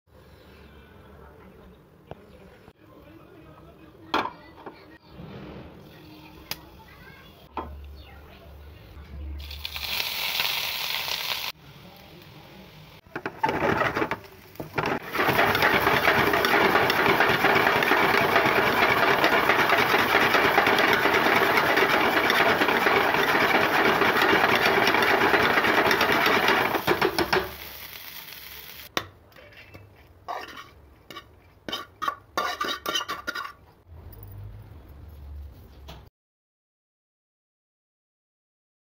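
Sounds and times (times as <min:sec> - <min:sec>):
steel spoon scraping pan: 0:13.1 - 0:27.6, 0:29.4 - 0:33.6.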